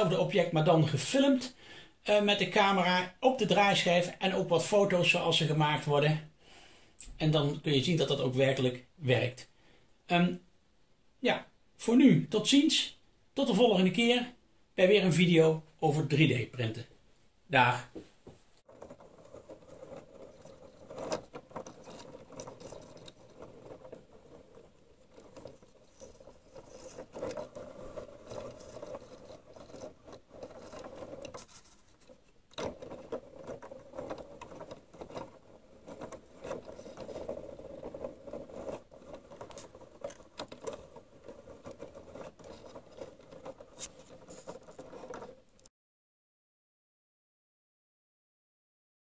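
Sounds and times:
plastic turntable rattling and clicking: 0:18.7 - 0:45.7.

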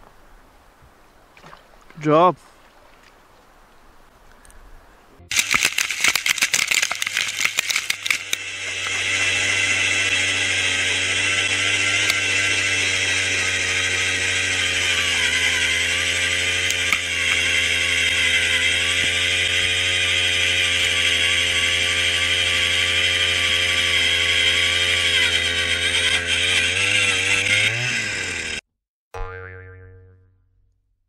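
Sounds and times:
auger motor whine: 0:05.2 - 0:28.6
ice auger blades clattering: 0:05.3 - 0:28.2.

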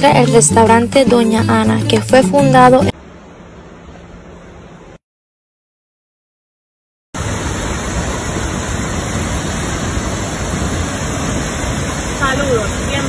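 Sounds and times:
waterfall rushing: 0:07.2 - 0:13.0.

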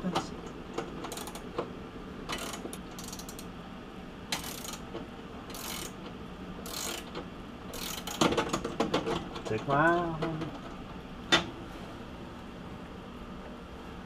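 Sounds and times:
ratcheting wrench clicking: 0:01.0 - 0:01.5, 0:02.3 - 0:03.5, 0:04.3 - 0:04.9, 0:05.5 - 0:06.0, 0:06.6 - 0:08.6.

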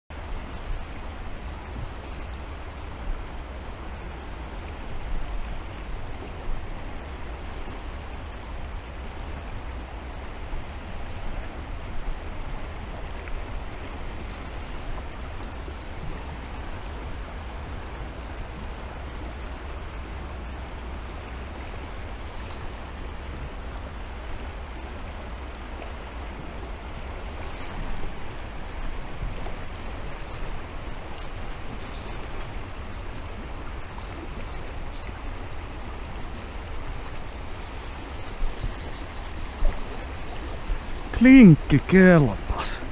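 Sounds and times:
wind rumble on microphone: 0:00.1 - 0:41.2
river rapid rushing: 0:00.2 - 0:42.9.

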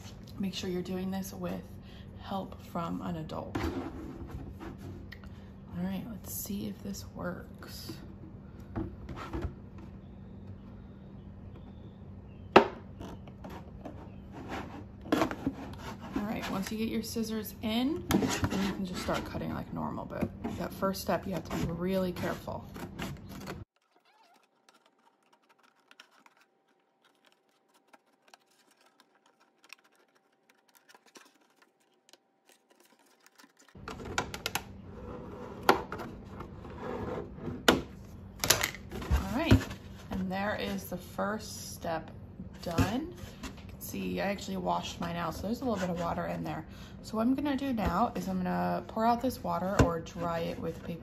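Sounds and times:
scissors snipping plastic: 0:22.9 - 0:33.8.

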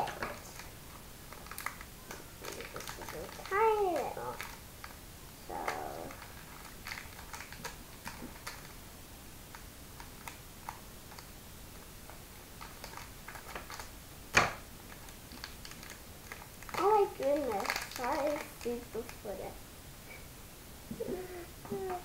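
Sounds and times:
foil bag crinkling: 0:00.0 - 0:08.8, 0:12.6 - 0:13.9, 0:14.9 - 0:19.4.

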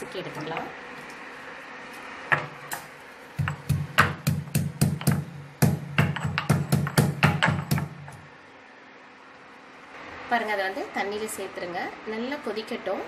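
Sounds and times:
pestle pounding spices: 0:02.3 - 0:08.2.

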